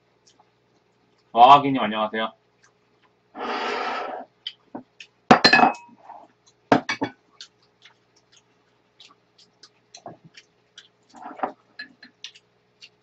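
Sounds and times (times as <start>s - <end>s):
utensils clinking against dishes: 5.4s - 6.2s.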